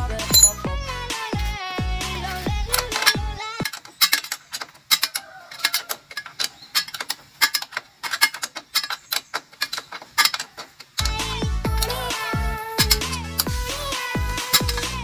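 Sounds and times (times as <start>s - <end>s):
bass-heavy electronic music: 0.0s - 3.4s, 11.0s - 15.0s
ratchet wrench clicking: 0.3s - 0.6s, 14.4s - 14.9s.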